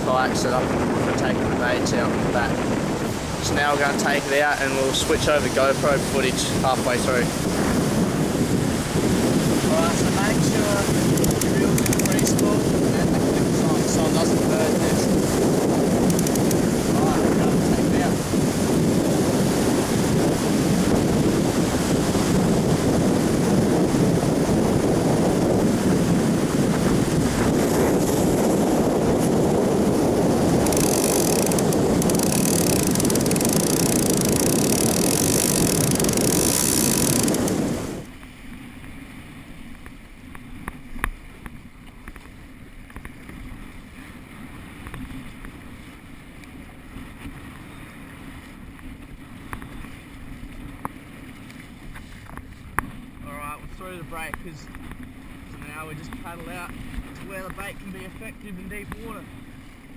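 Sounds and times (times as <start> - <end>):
breaking surf: 0.0 - 38.2
wind buffeting microphone: 0.0 - 39.7, 40.4 - 59.9
kayak paddling: 0.0 - 59.9.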